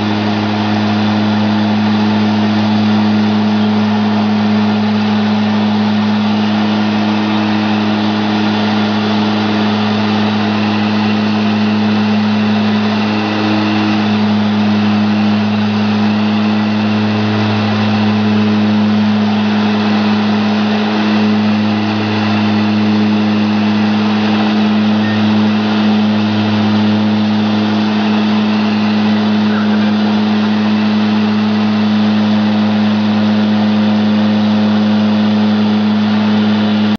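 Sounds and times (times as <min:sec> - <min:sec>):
faint high engine tone: 0:00.0 - 0:36.9
turboprop engines droning: 0:00.0 - 0:36.9.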